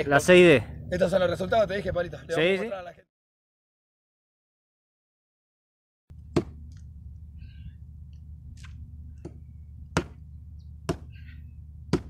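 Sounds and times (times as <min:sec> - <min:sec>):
steady low rumble: 0:00.0 - 0:02.3, 0:06.1 - 0:12.0
axe chopping wooden log: 0:06.3 - 0:06.7, 0:08.6 - 0:10.2, 0:10.9 - 0:11.1.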